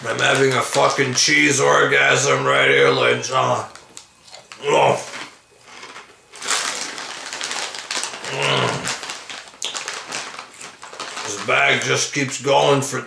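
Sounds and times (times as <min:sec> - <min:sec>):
crunchy snacks being chewed: 0:03.6 - 0:11.9
man moaning: 0:08.2 - 0:08.9.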